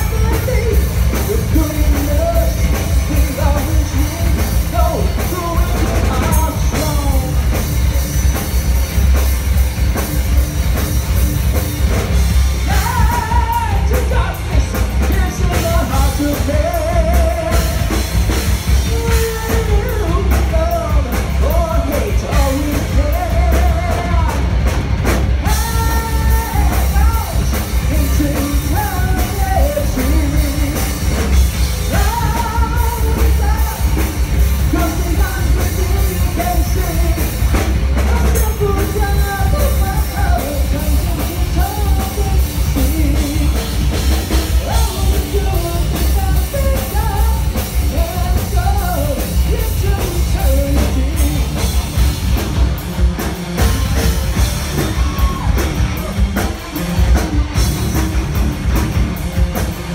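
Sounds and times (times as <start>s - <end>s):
person singing: 0.0s - 7.6s, 12.6s - 24.5s, 25.4s - 52.1s
bass guitar: 0.0s - 59.9s
distorted electric guitars: 0.0s - 59.9s
drum kit: 0.0s - 59.9s.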